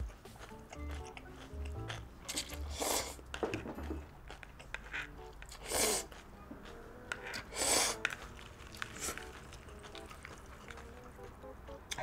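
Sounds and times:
slurping noodles: 1.4 - 3.2, 4.7 - 6.2, 7.2 - 9.3.

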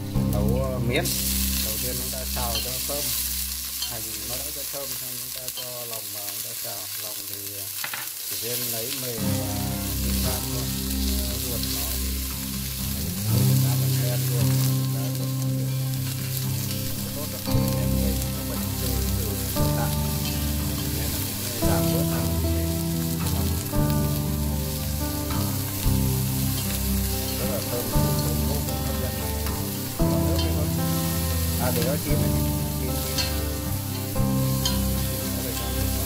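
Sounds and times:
background music with held notes: 0.0 - 7.7, 8.4 - 36.0
food sizzling in a pot: 0.0 - 36.0.

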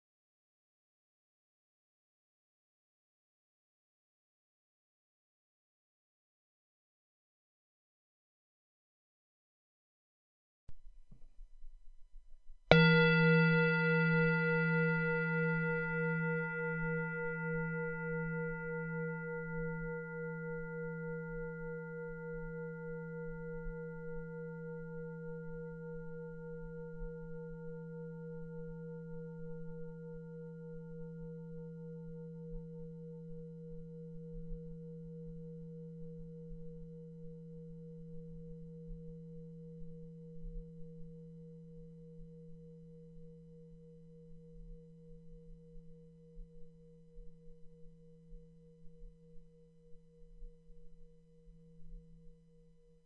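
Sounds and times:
singing bowl ringing: 12.7 - 53.0.

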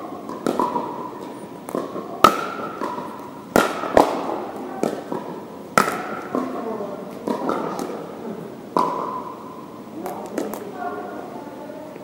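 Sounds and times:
paddles striking plastic ball: 0.3 - 1.0, 1.7 - 8.0, 8.8 - 9.2.

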